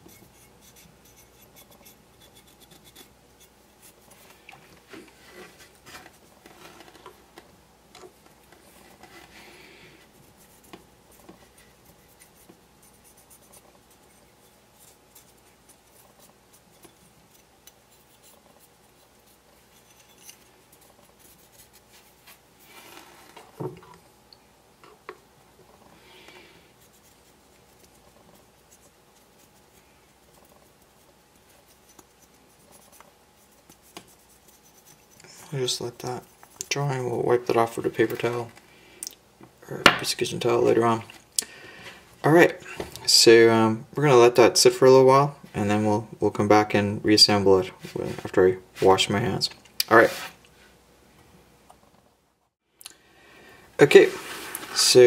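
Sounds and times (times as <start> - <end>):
cotton swab scratching: 10.2 - 22.4, 26.8 - 36.8.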